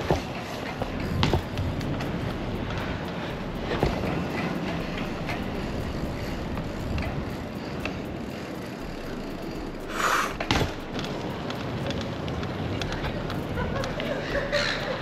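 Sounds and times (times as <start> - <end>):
bicycle tyres on wet pavement: 0.0 - 15.0.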